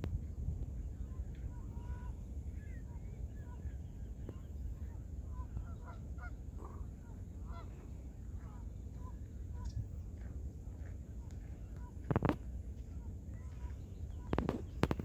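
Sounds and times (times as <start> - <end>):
steady low rumble: 0.0 - 15.0
waterfowl honking: 5.3 - 9.8.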